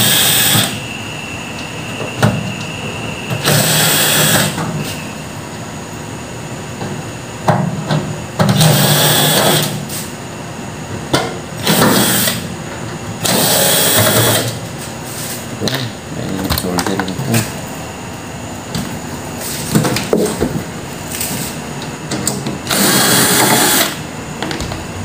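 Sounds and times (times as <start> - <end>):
cordless drill running: 0.0 - 0.8, 3.4 - 4.6, 8.6 - 9.7, 11.6 - 12.4, 13.2 - 14.5, 22.7 - 24.0.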